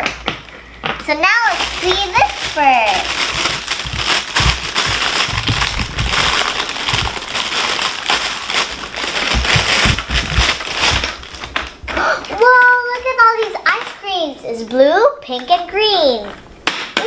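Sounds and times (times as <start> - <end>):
dull bumps of toy pieces: 0.0 - 12.7, 16.6 - 17.0
plastic bag crinkling: 0.0 - 14.7.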